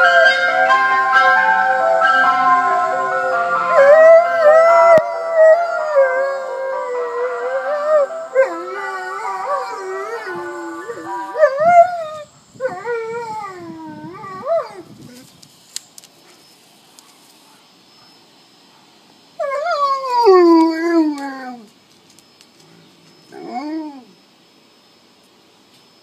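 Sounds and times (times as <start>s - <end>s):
ice cream van tune: 0.0s - 4.2s
dog howling: 3.7s - 14.9s, 23.3s - 24.2s.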